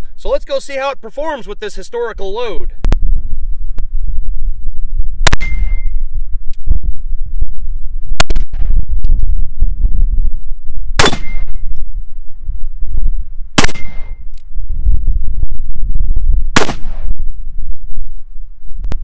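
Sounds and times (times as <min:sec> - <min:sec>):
steel target ringing: 0:05.3 - 0:06.1, 0:11.0 - 0:11.6, 0:13.6 - 0:14.3
revolver gunshots: 0:11.0 - 0:11.5, 0:13.6 - 0:14.2, 0:16.5 - 0:17.2.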